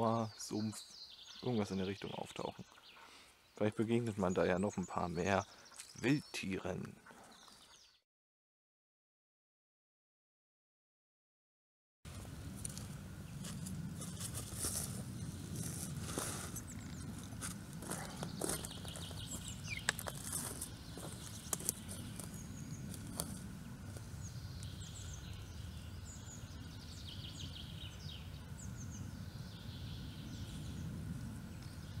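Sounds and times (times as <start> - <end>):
small birds chirping: 0.0 - 8.0, 13.2 - 32.0
footsteps on dry twigs: 12.1 - 24.8
low wind rumble: 12.1 - 32.0.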